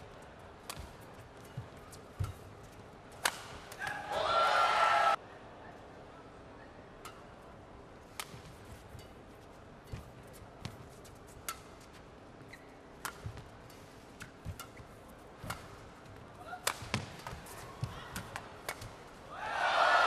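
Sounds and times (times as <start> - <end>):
low arena hum: 0.0 - 20.0
rackets hitting shuttlecock: 0.5 - 4.1, 8.0 - 9.2, 9.9 - 19.2.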